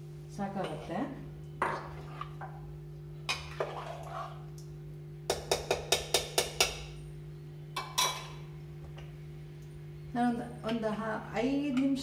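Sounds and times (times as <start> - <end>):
spoon stirring in metal pot: 0.5 - 2.6, 3.3 - 4.5
spoon tapping pot: 5.3 - 7.0.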